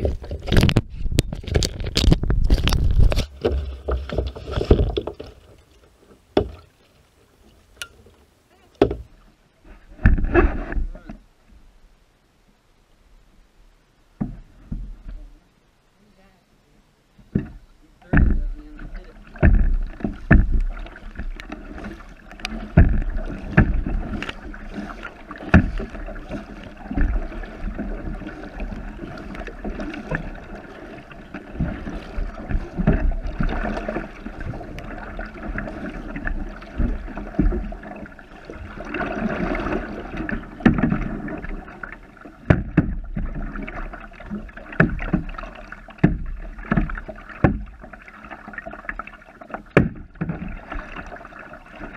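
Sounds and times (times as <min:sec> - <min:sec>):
paddle strokes splashing: 0:00.0 - 0:11.1, 0:17.2 - 0:51.9
water washing along hull: 0:00.0 - 0:11.2, 0:17.2 - 0:51.9
sharp knocks: 0:19.4 - 0:21.3, 0:22.7 - 0:23.9.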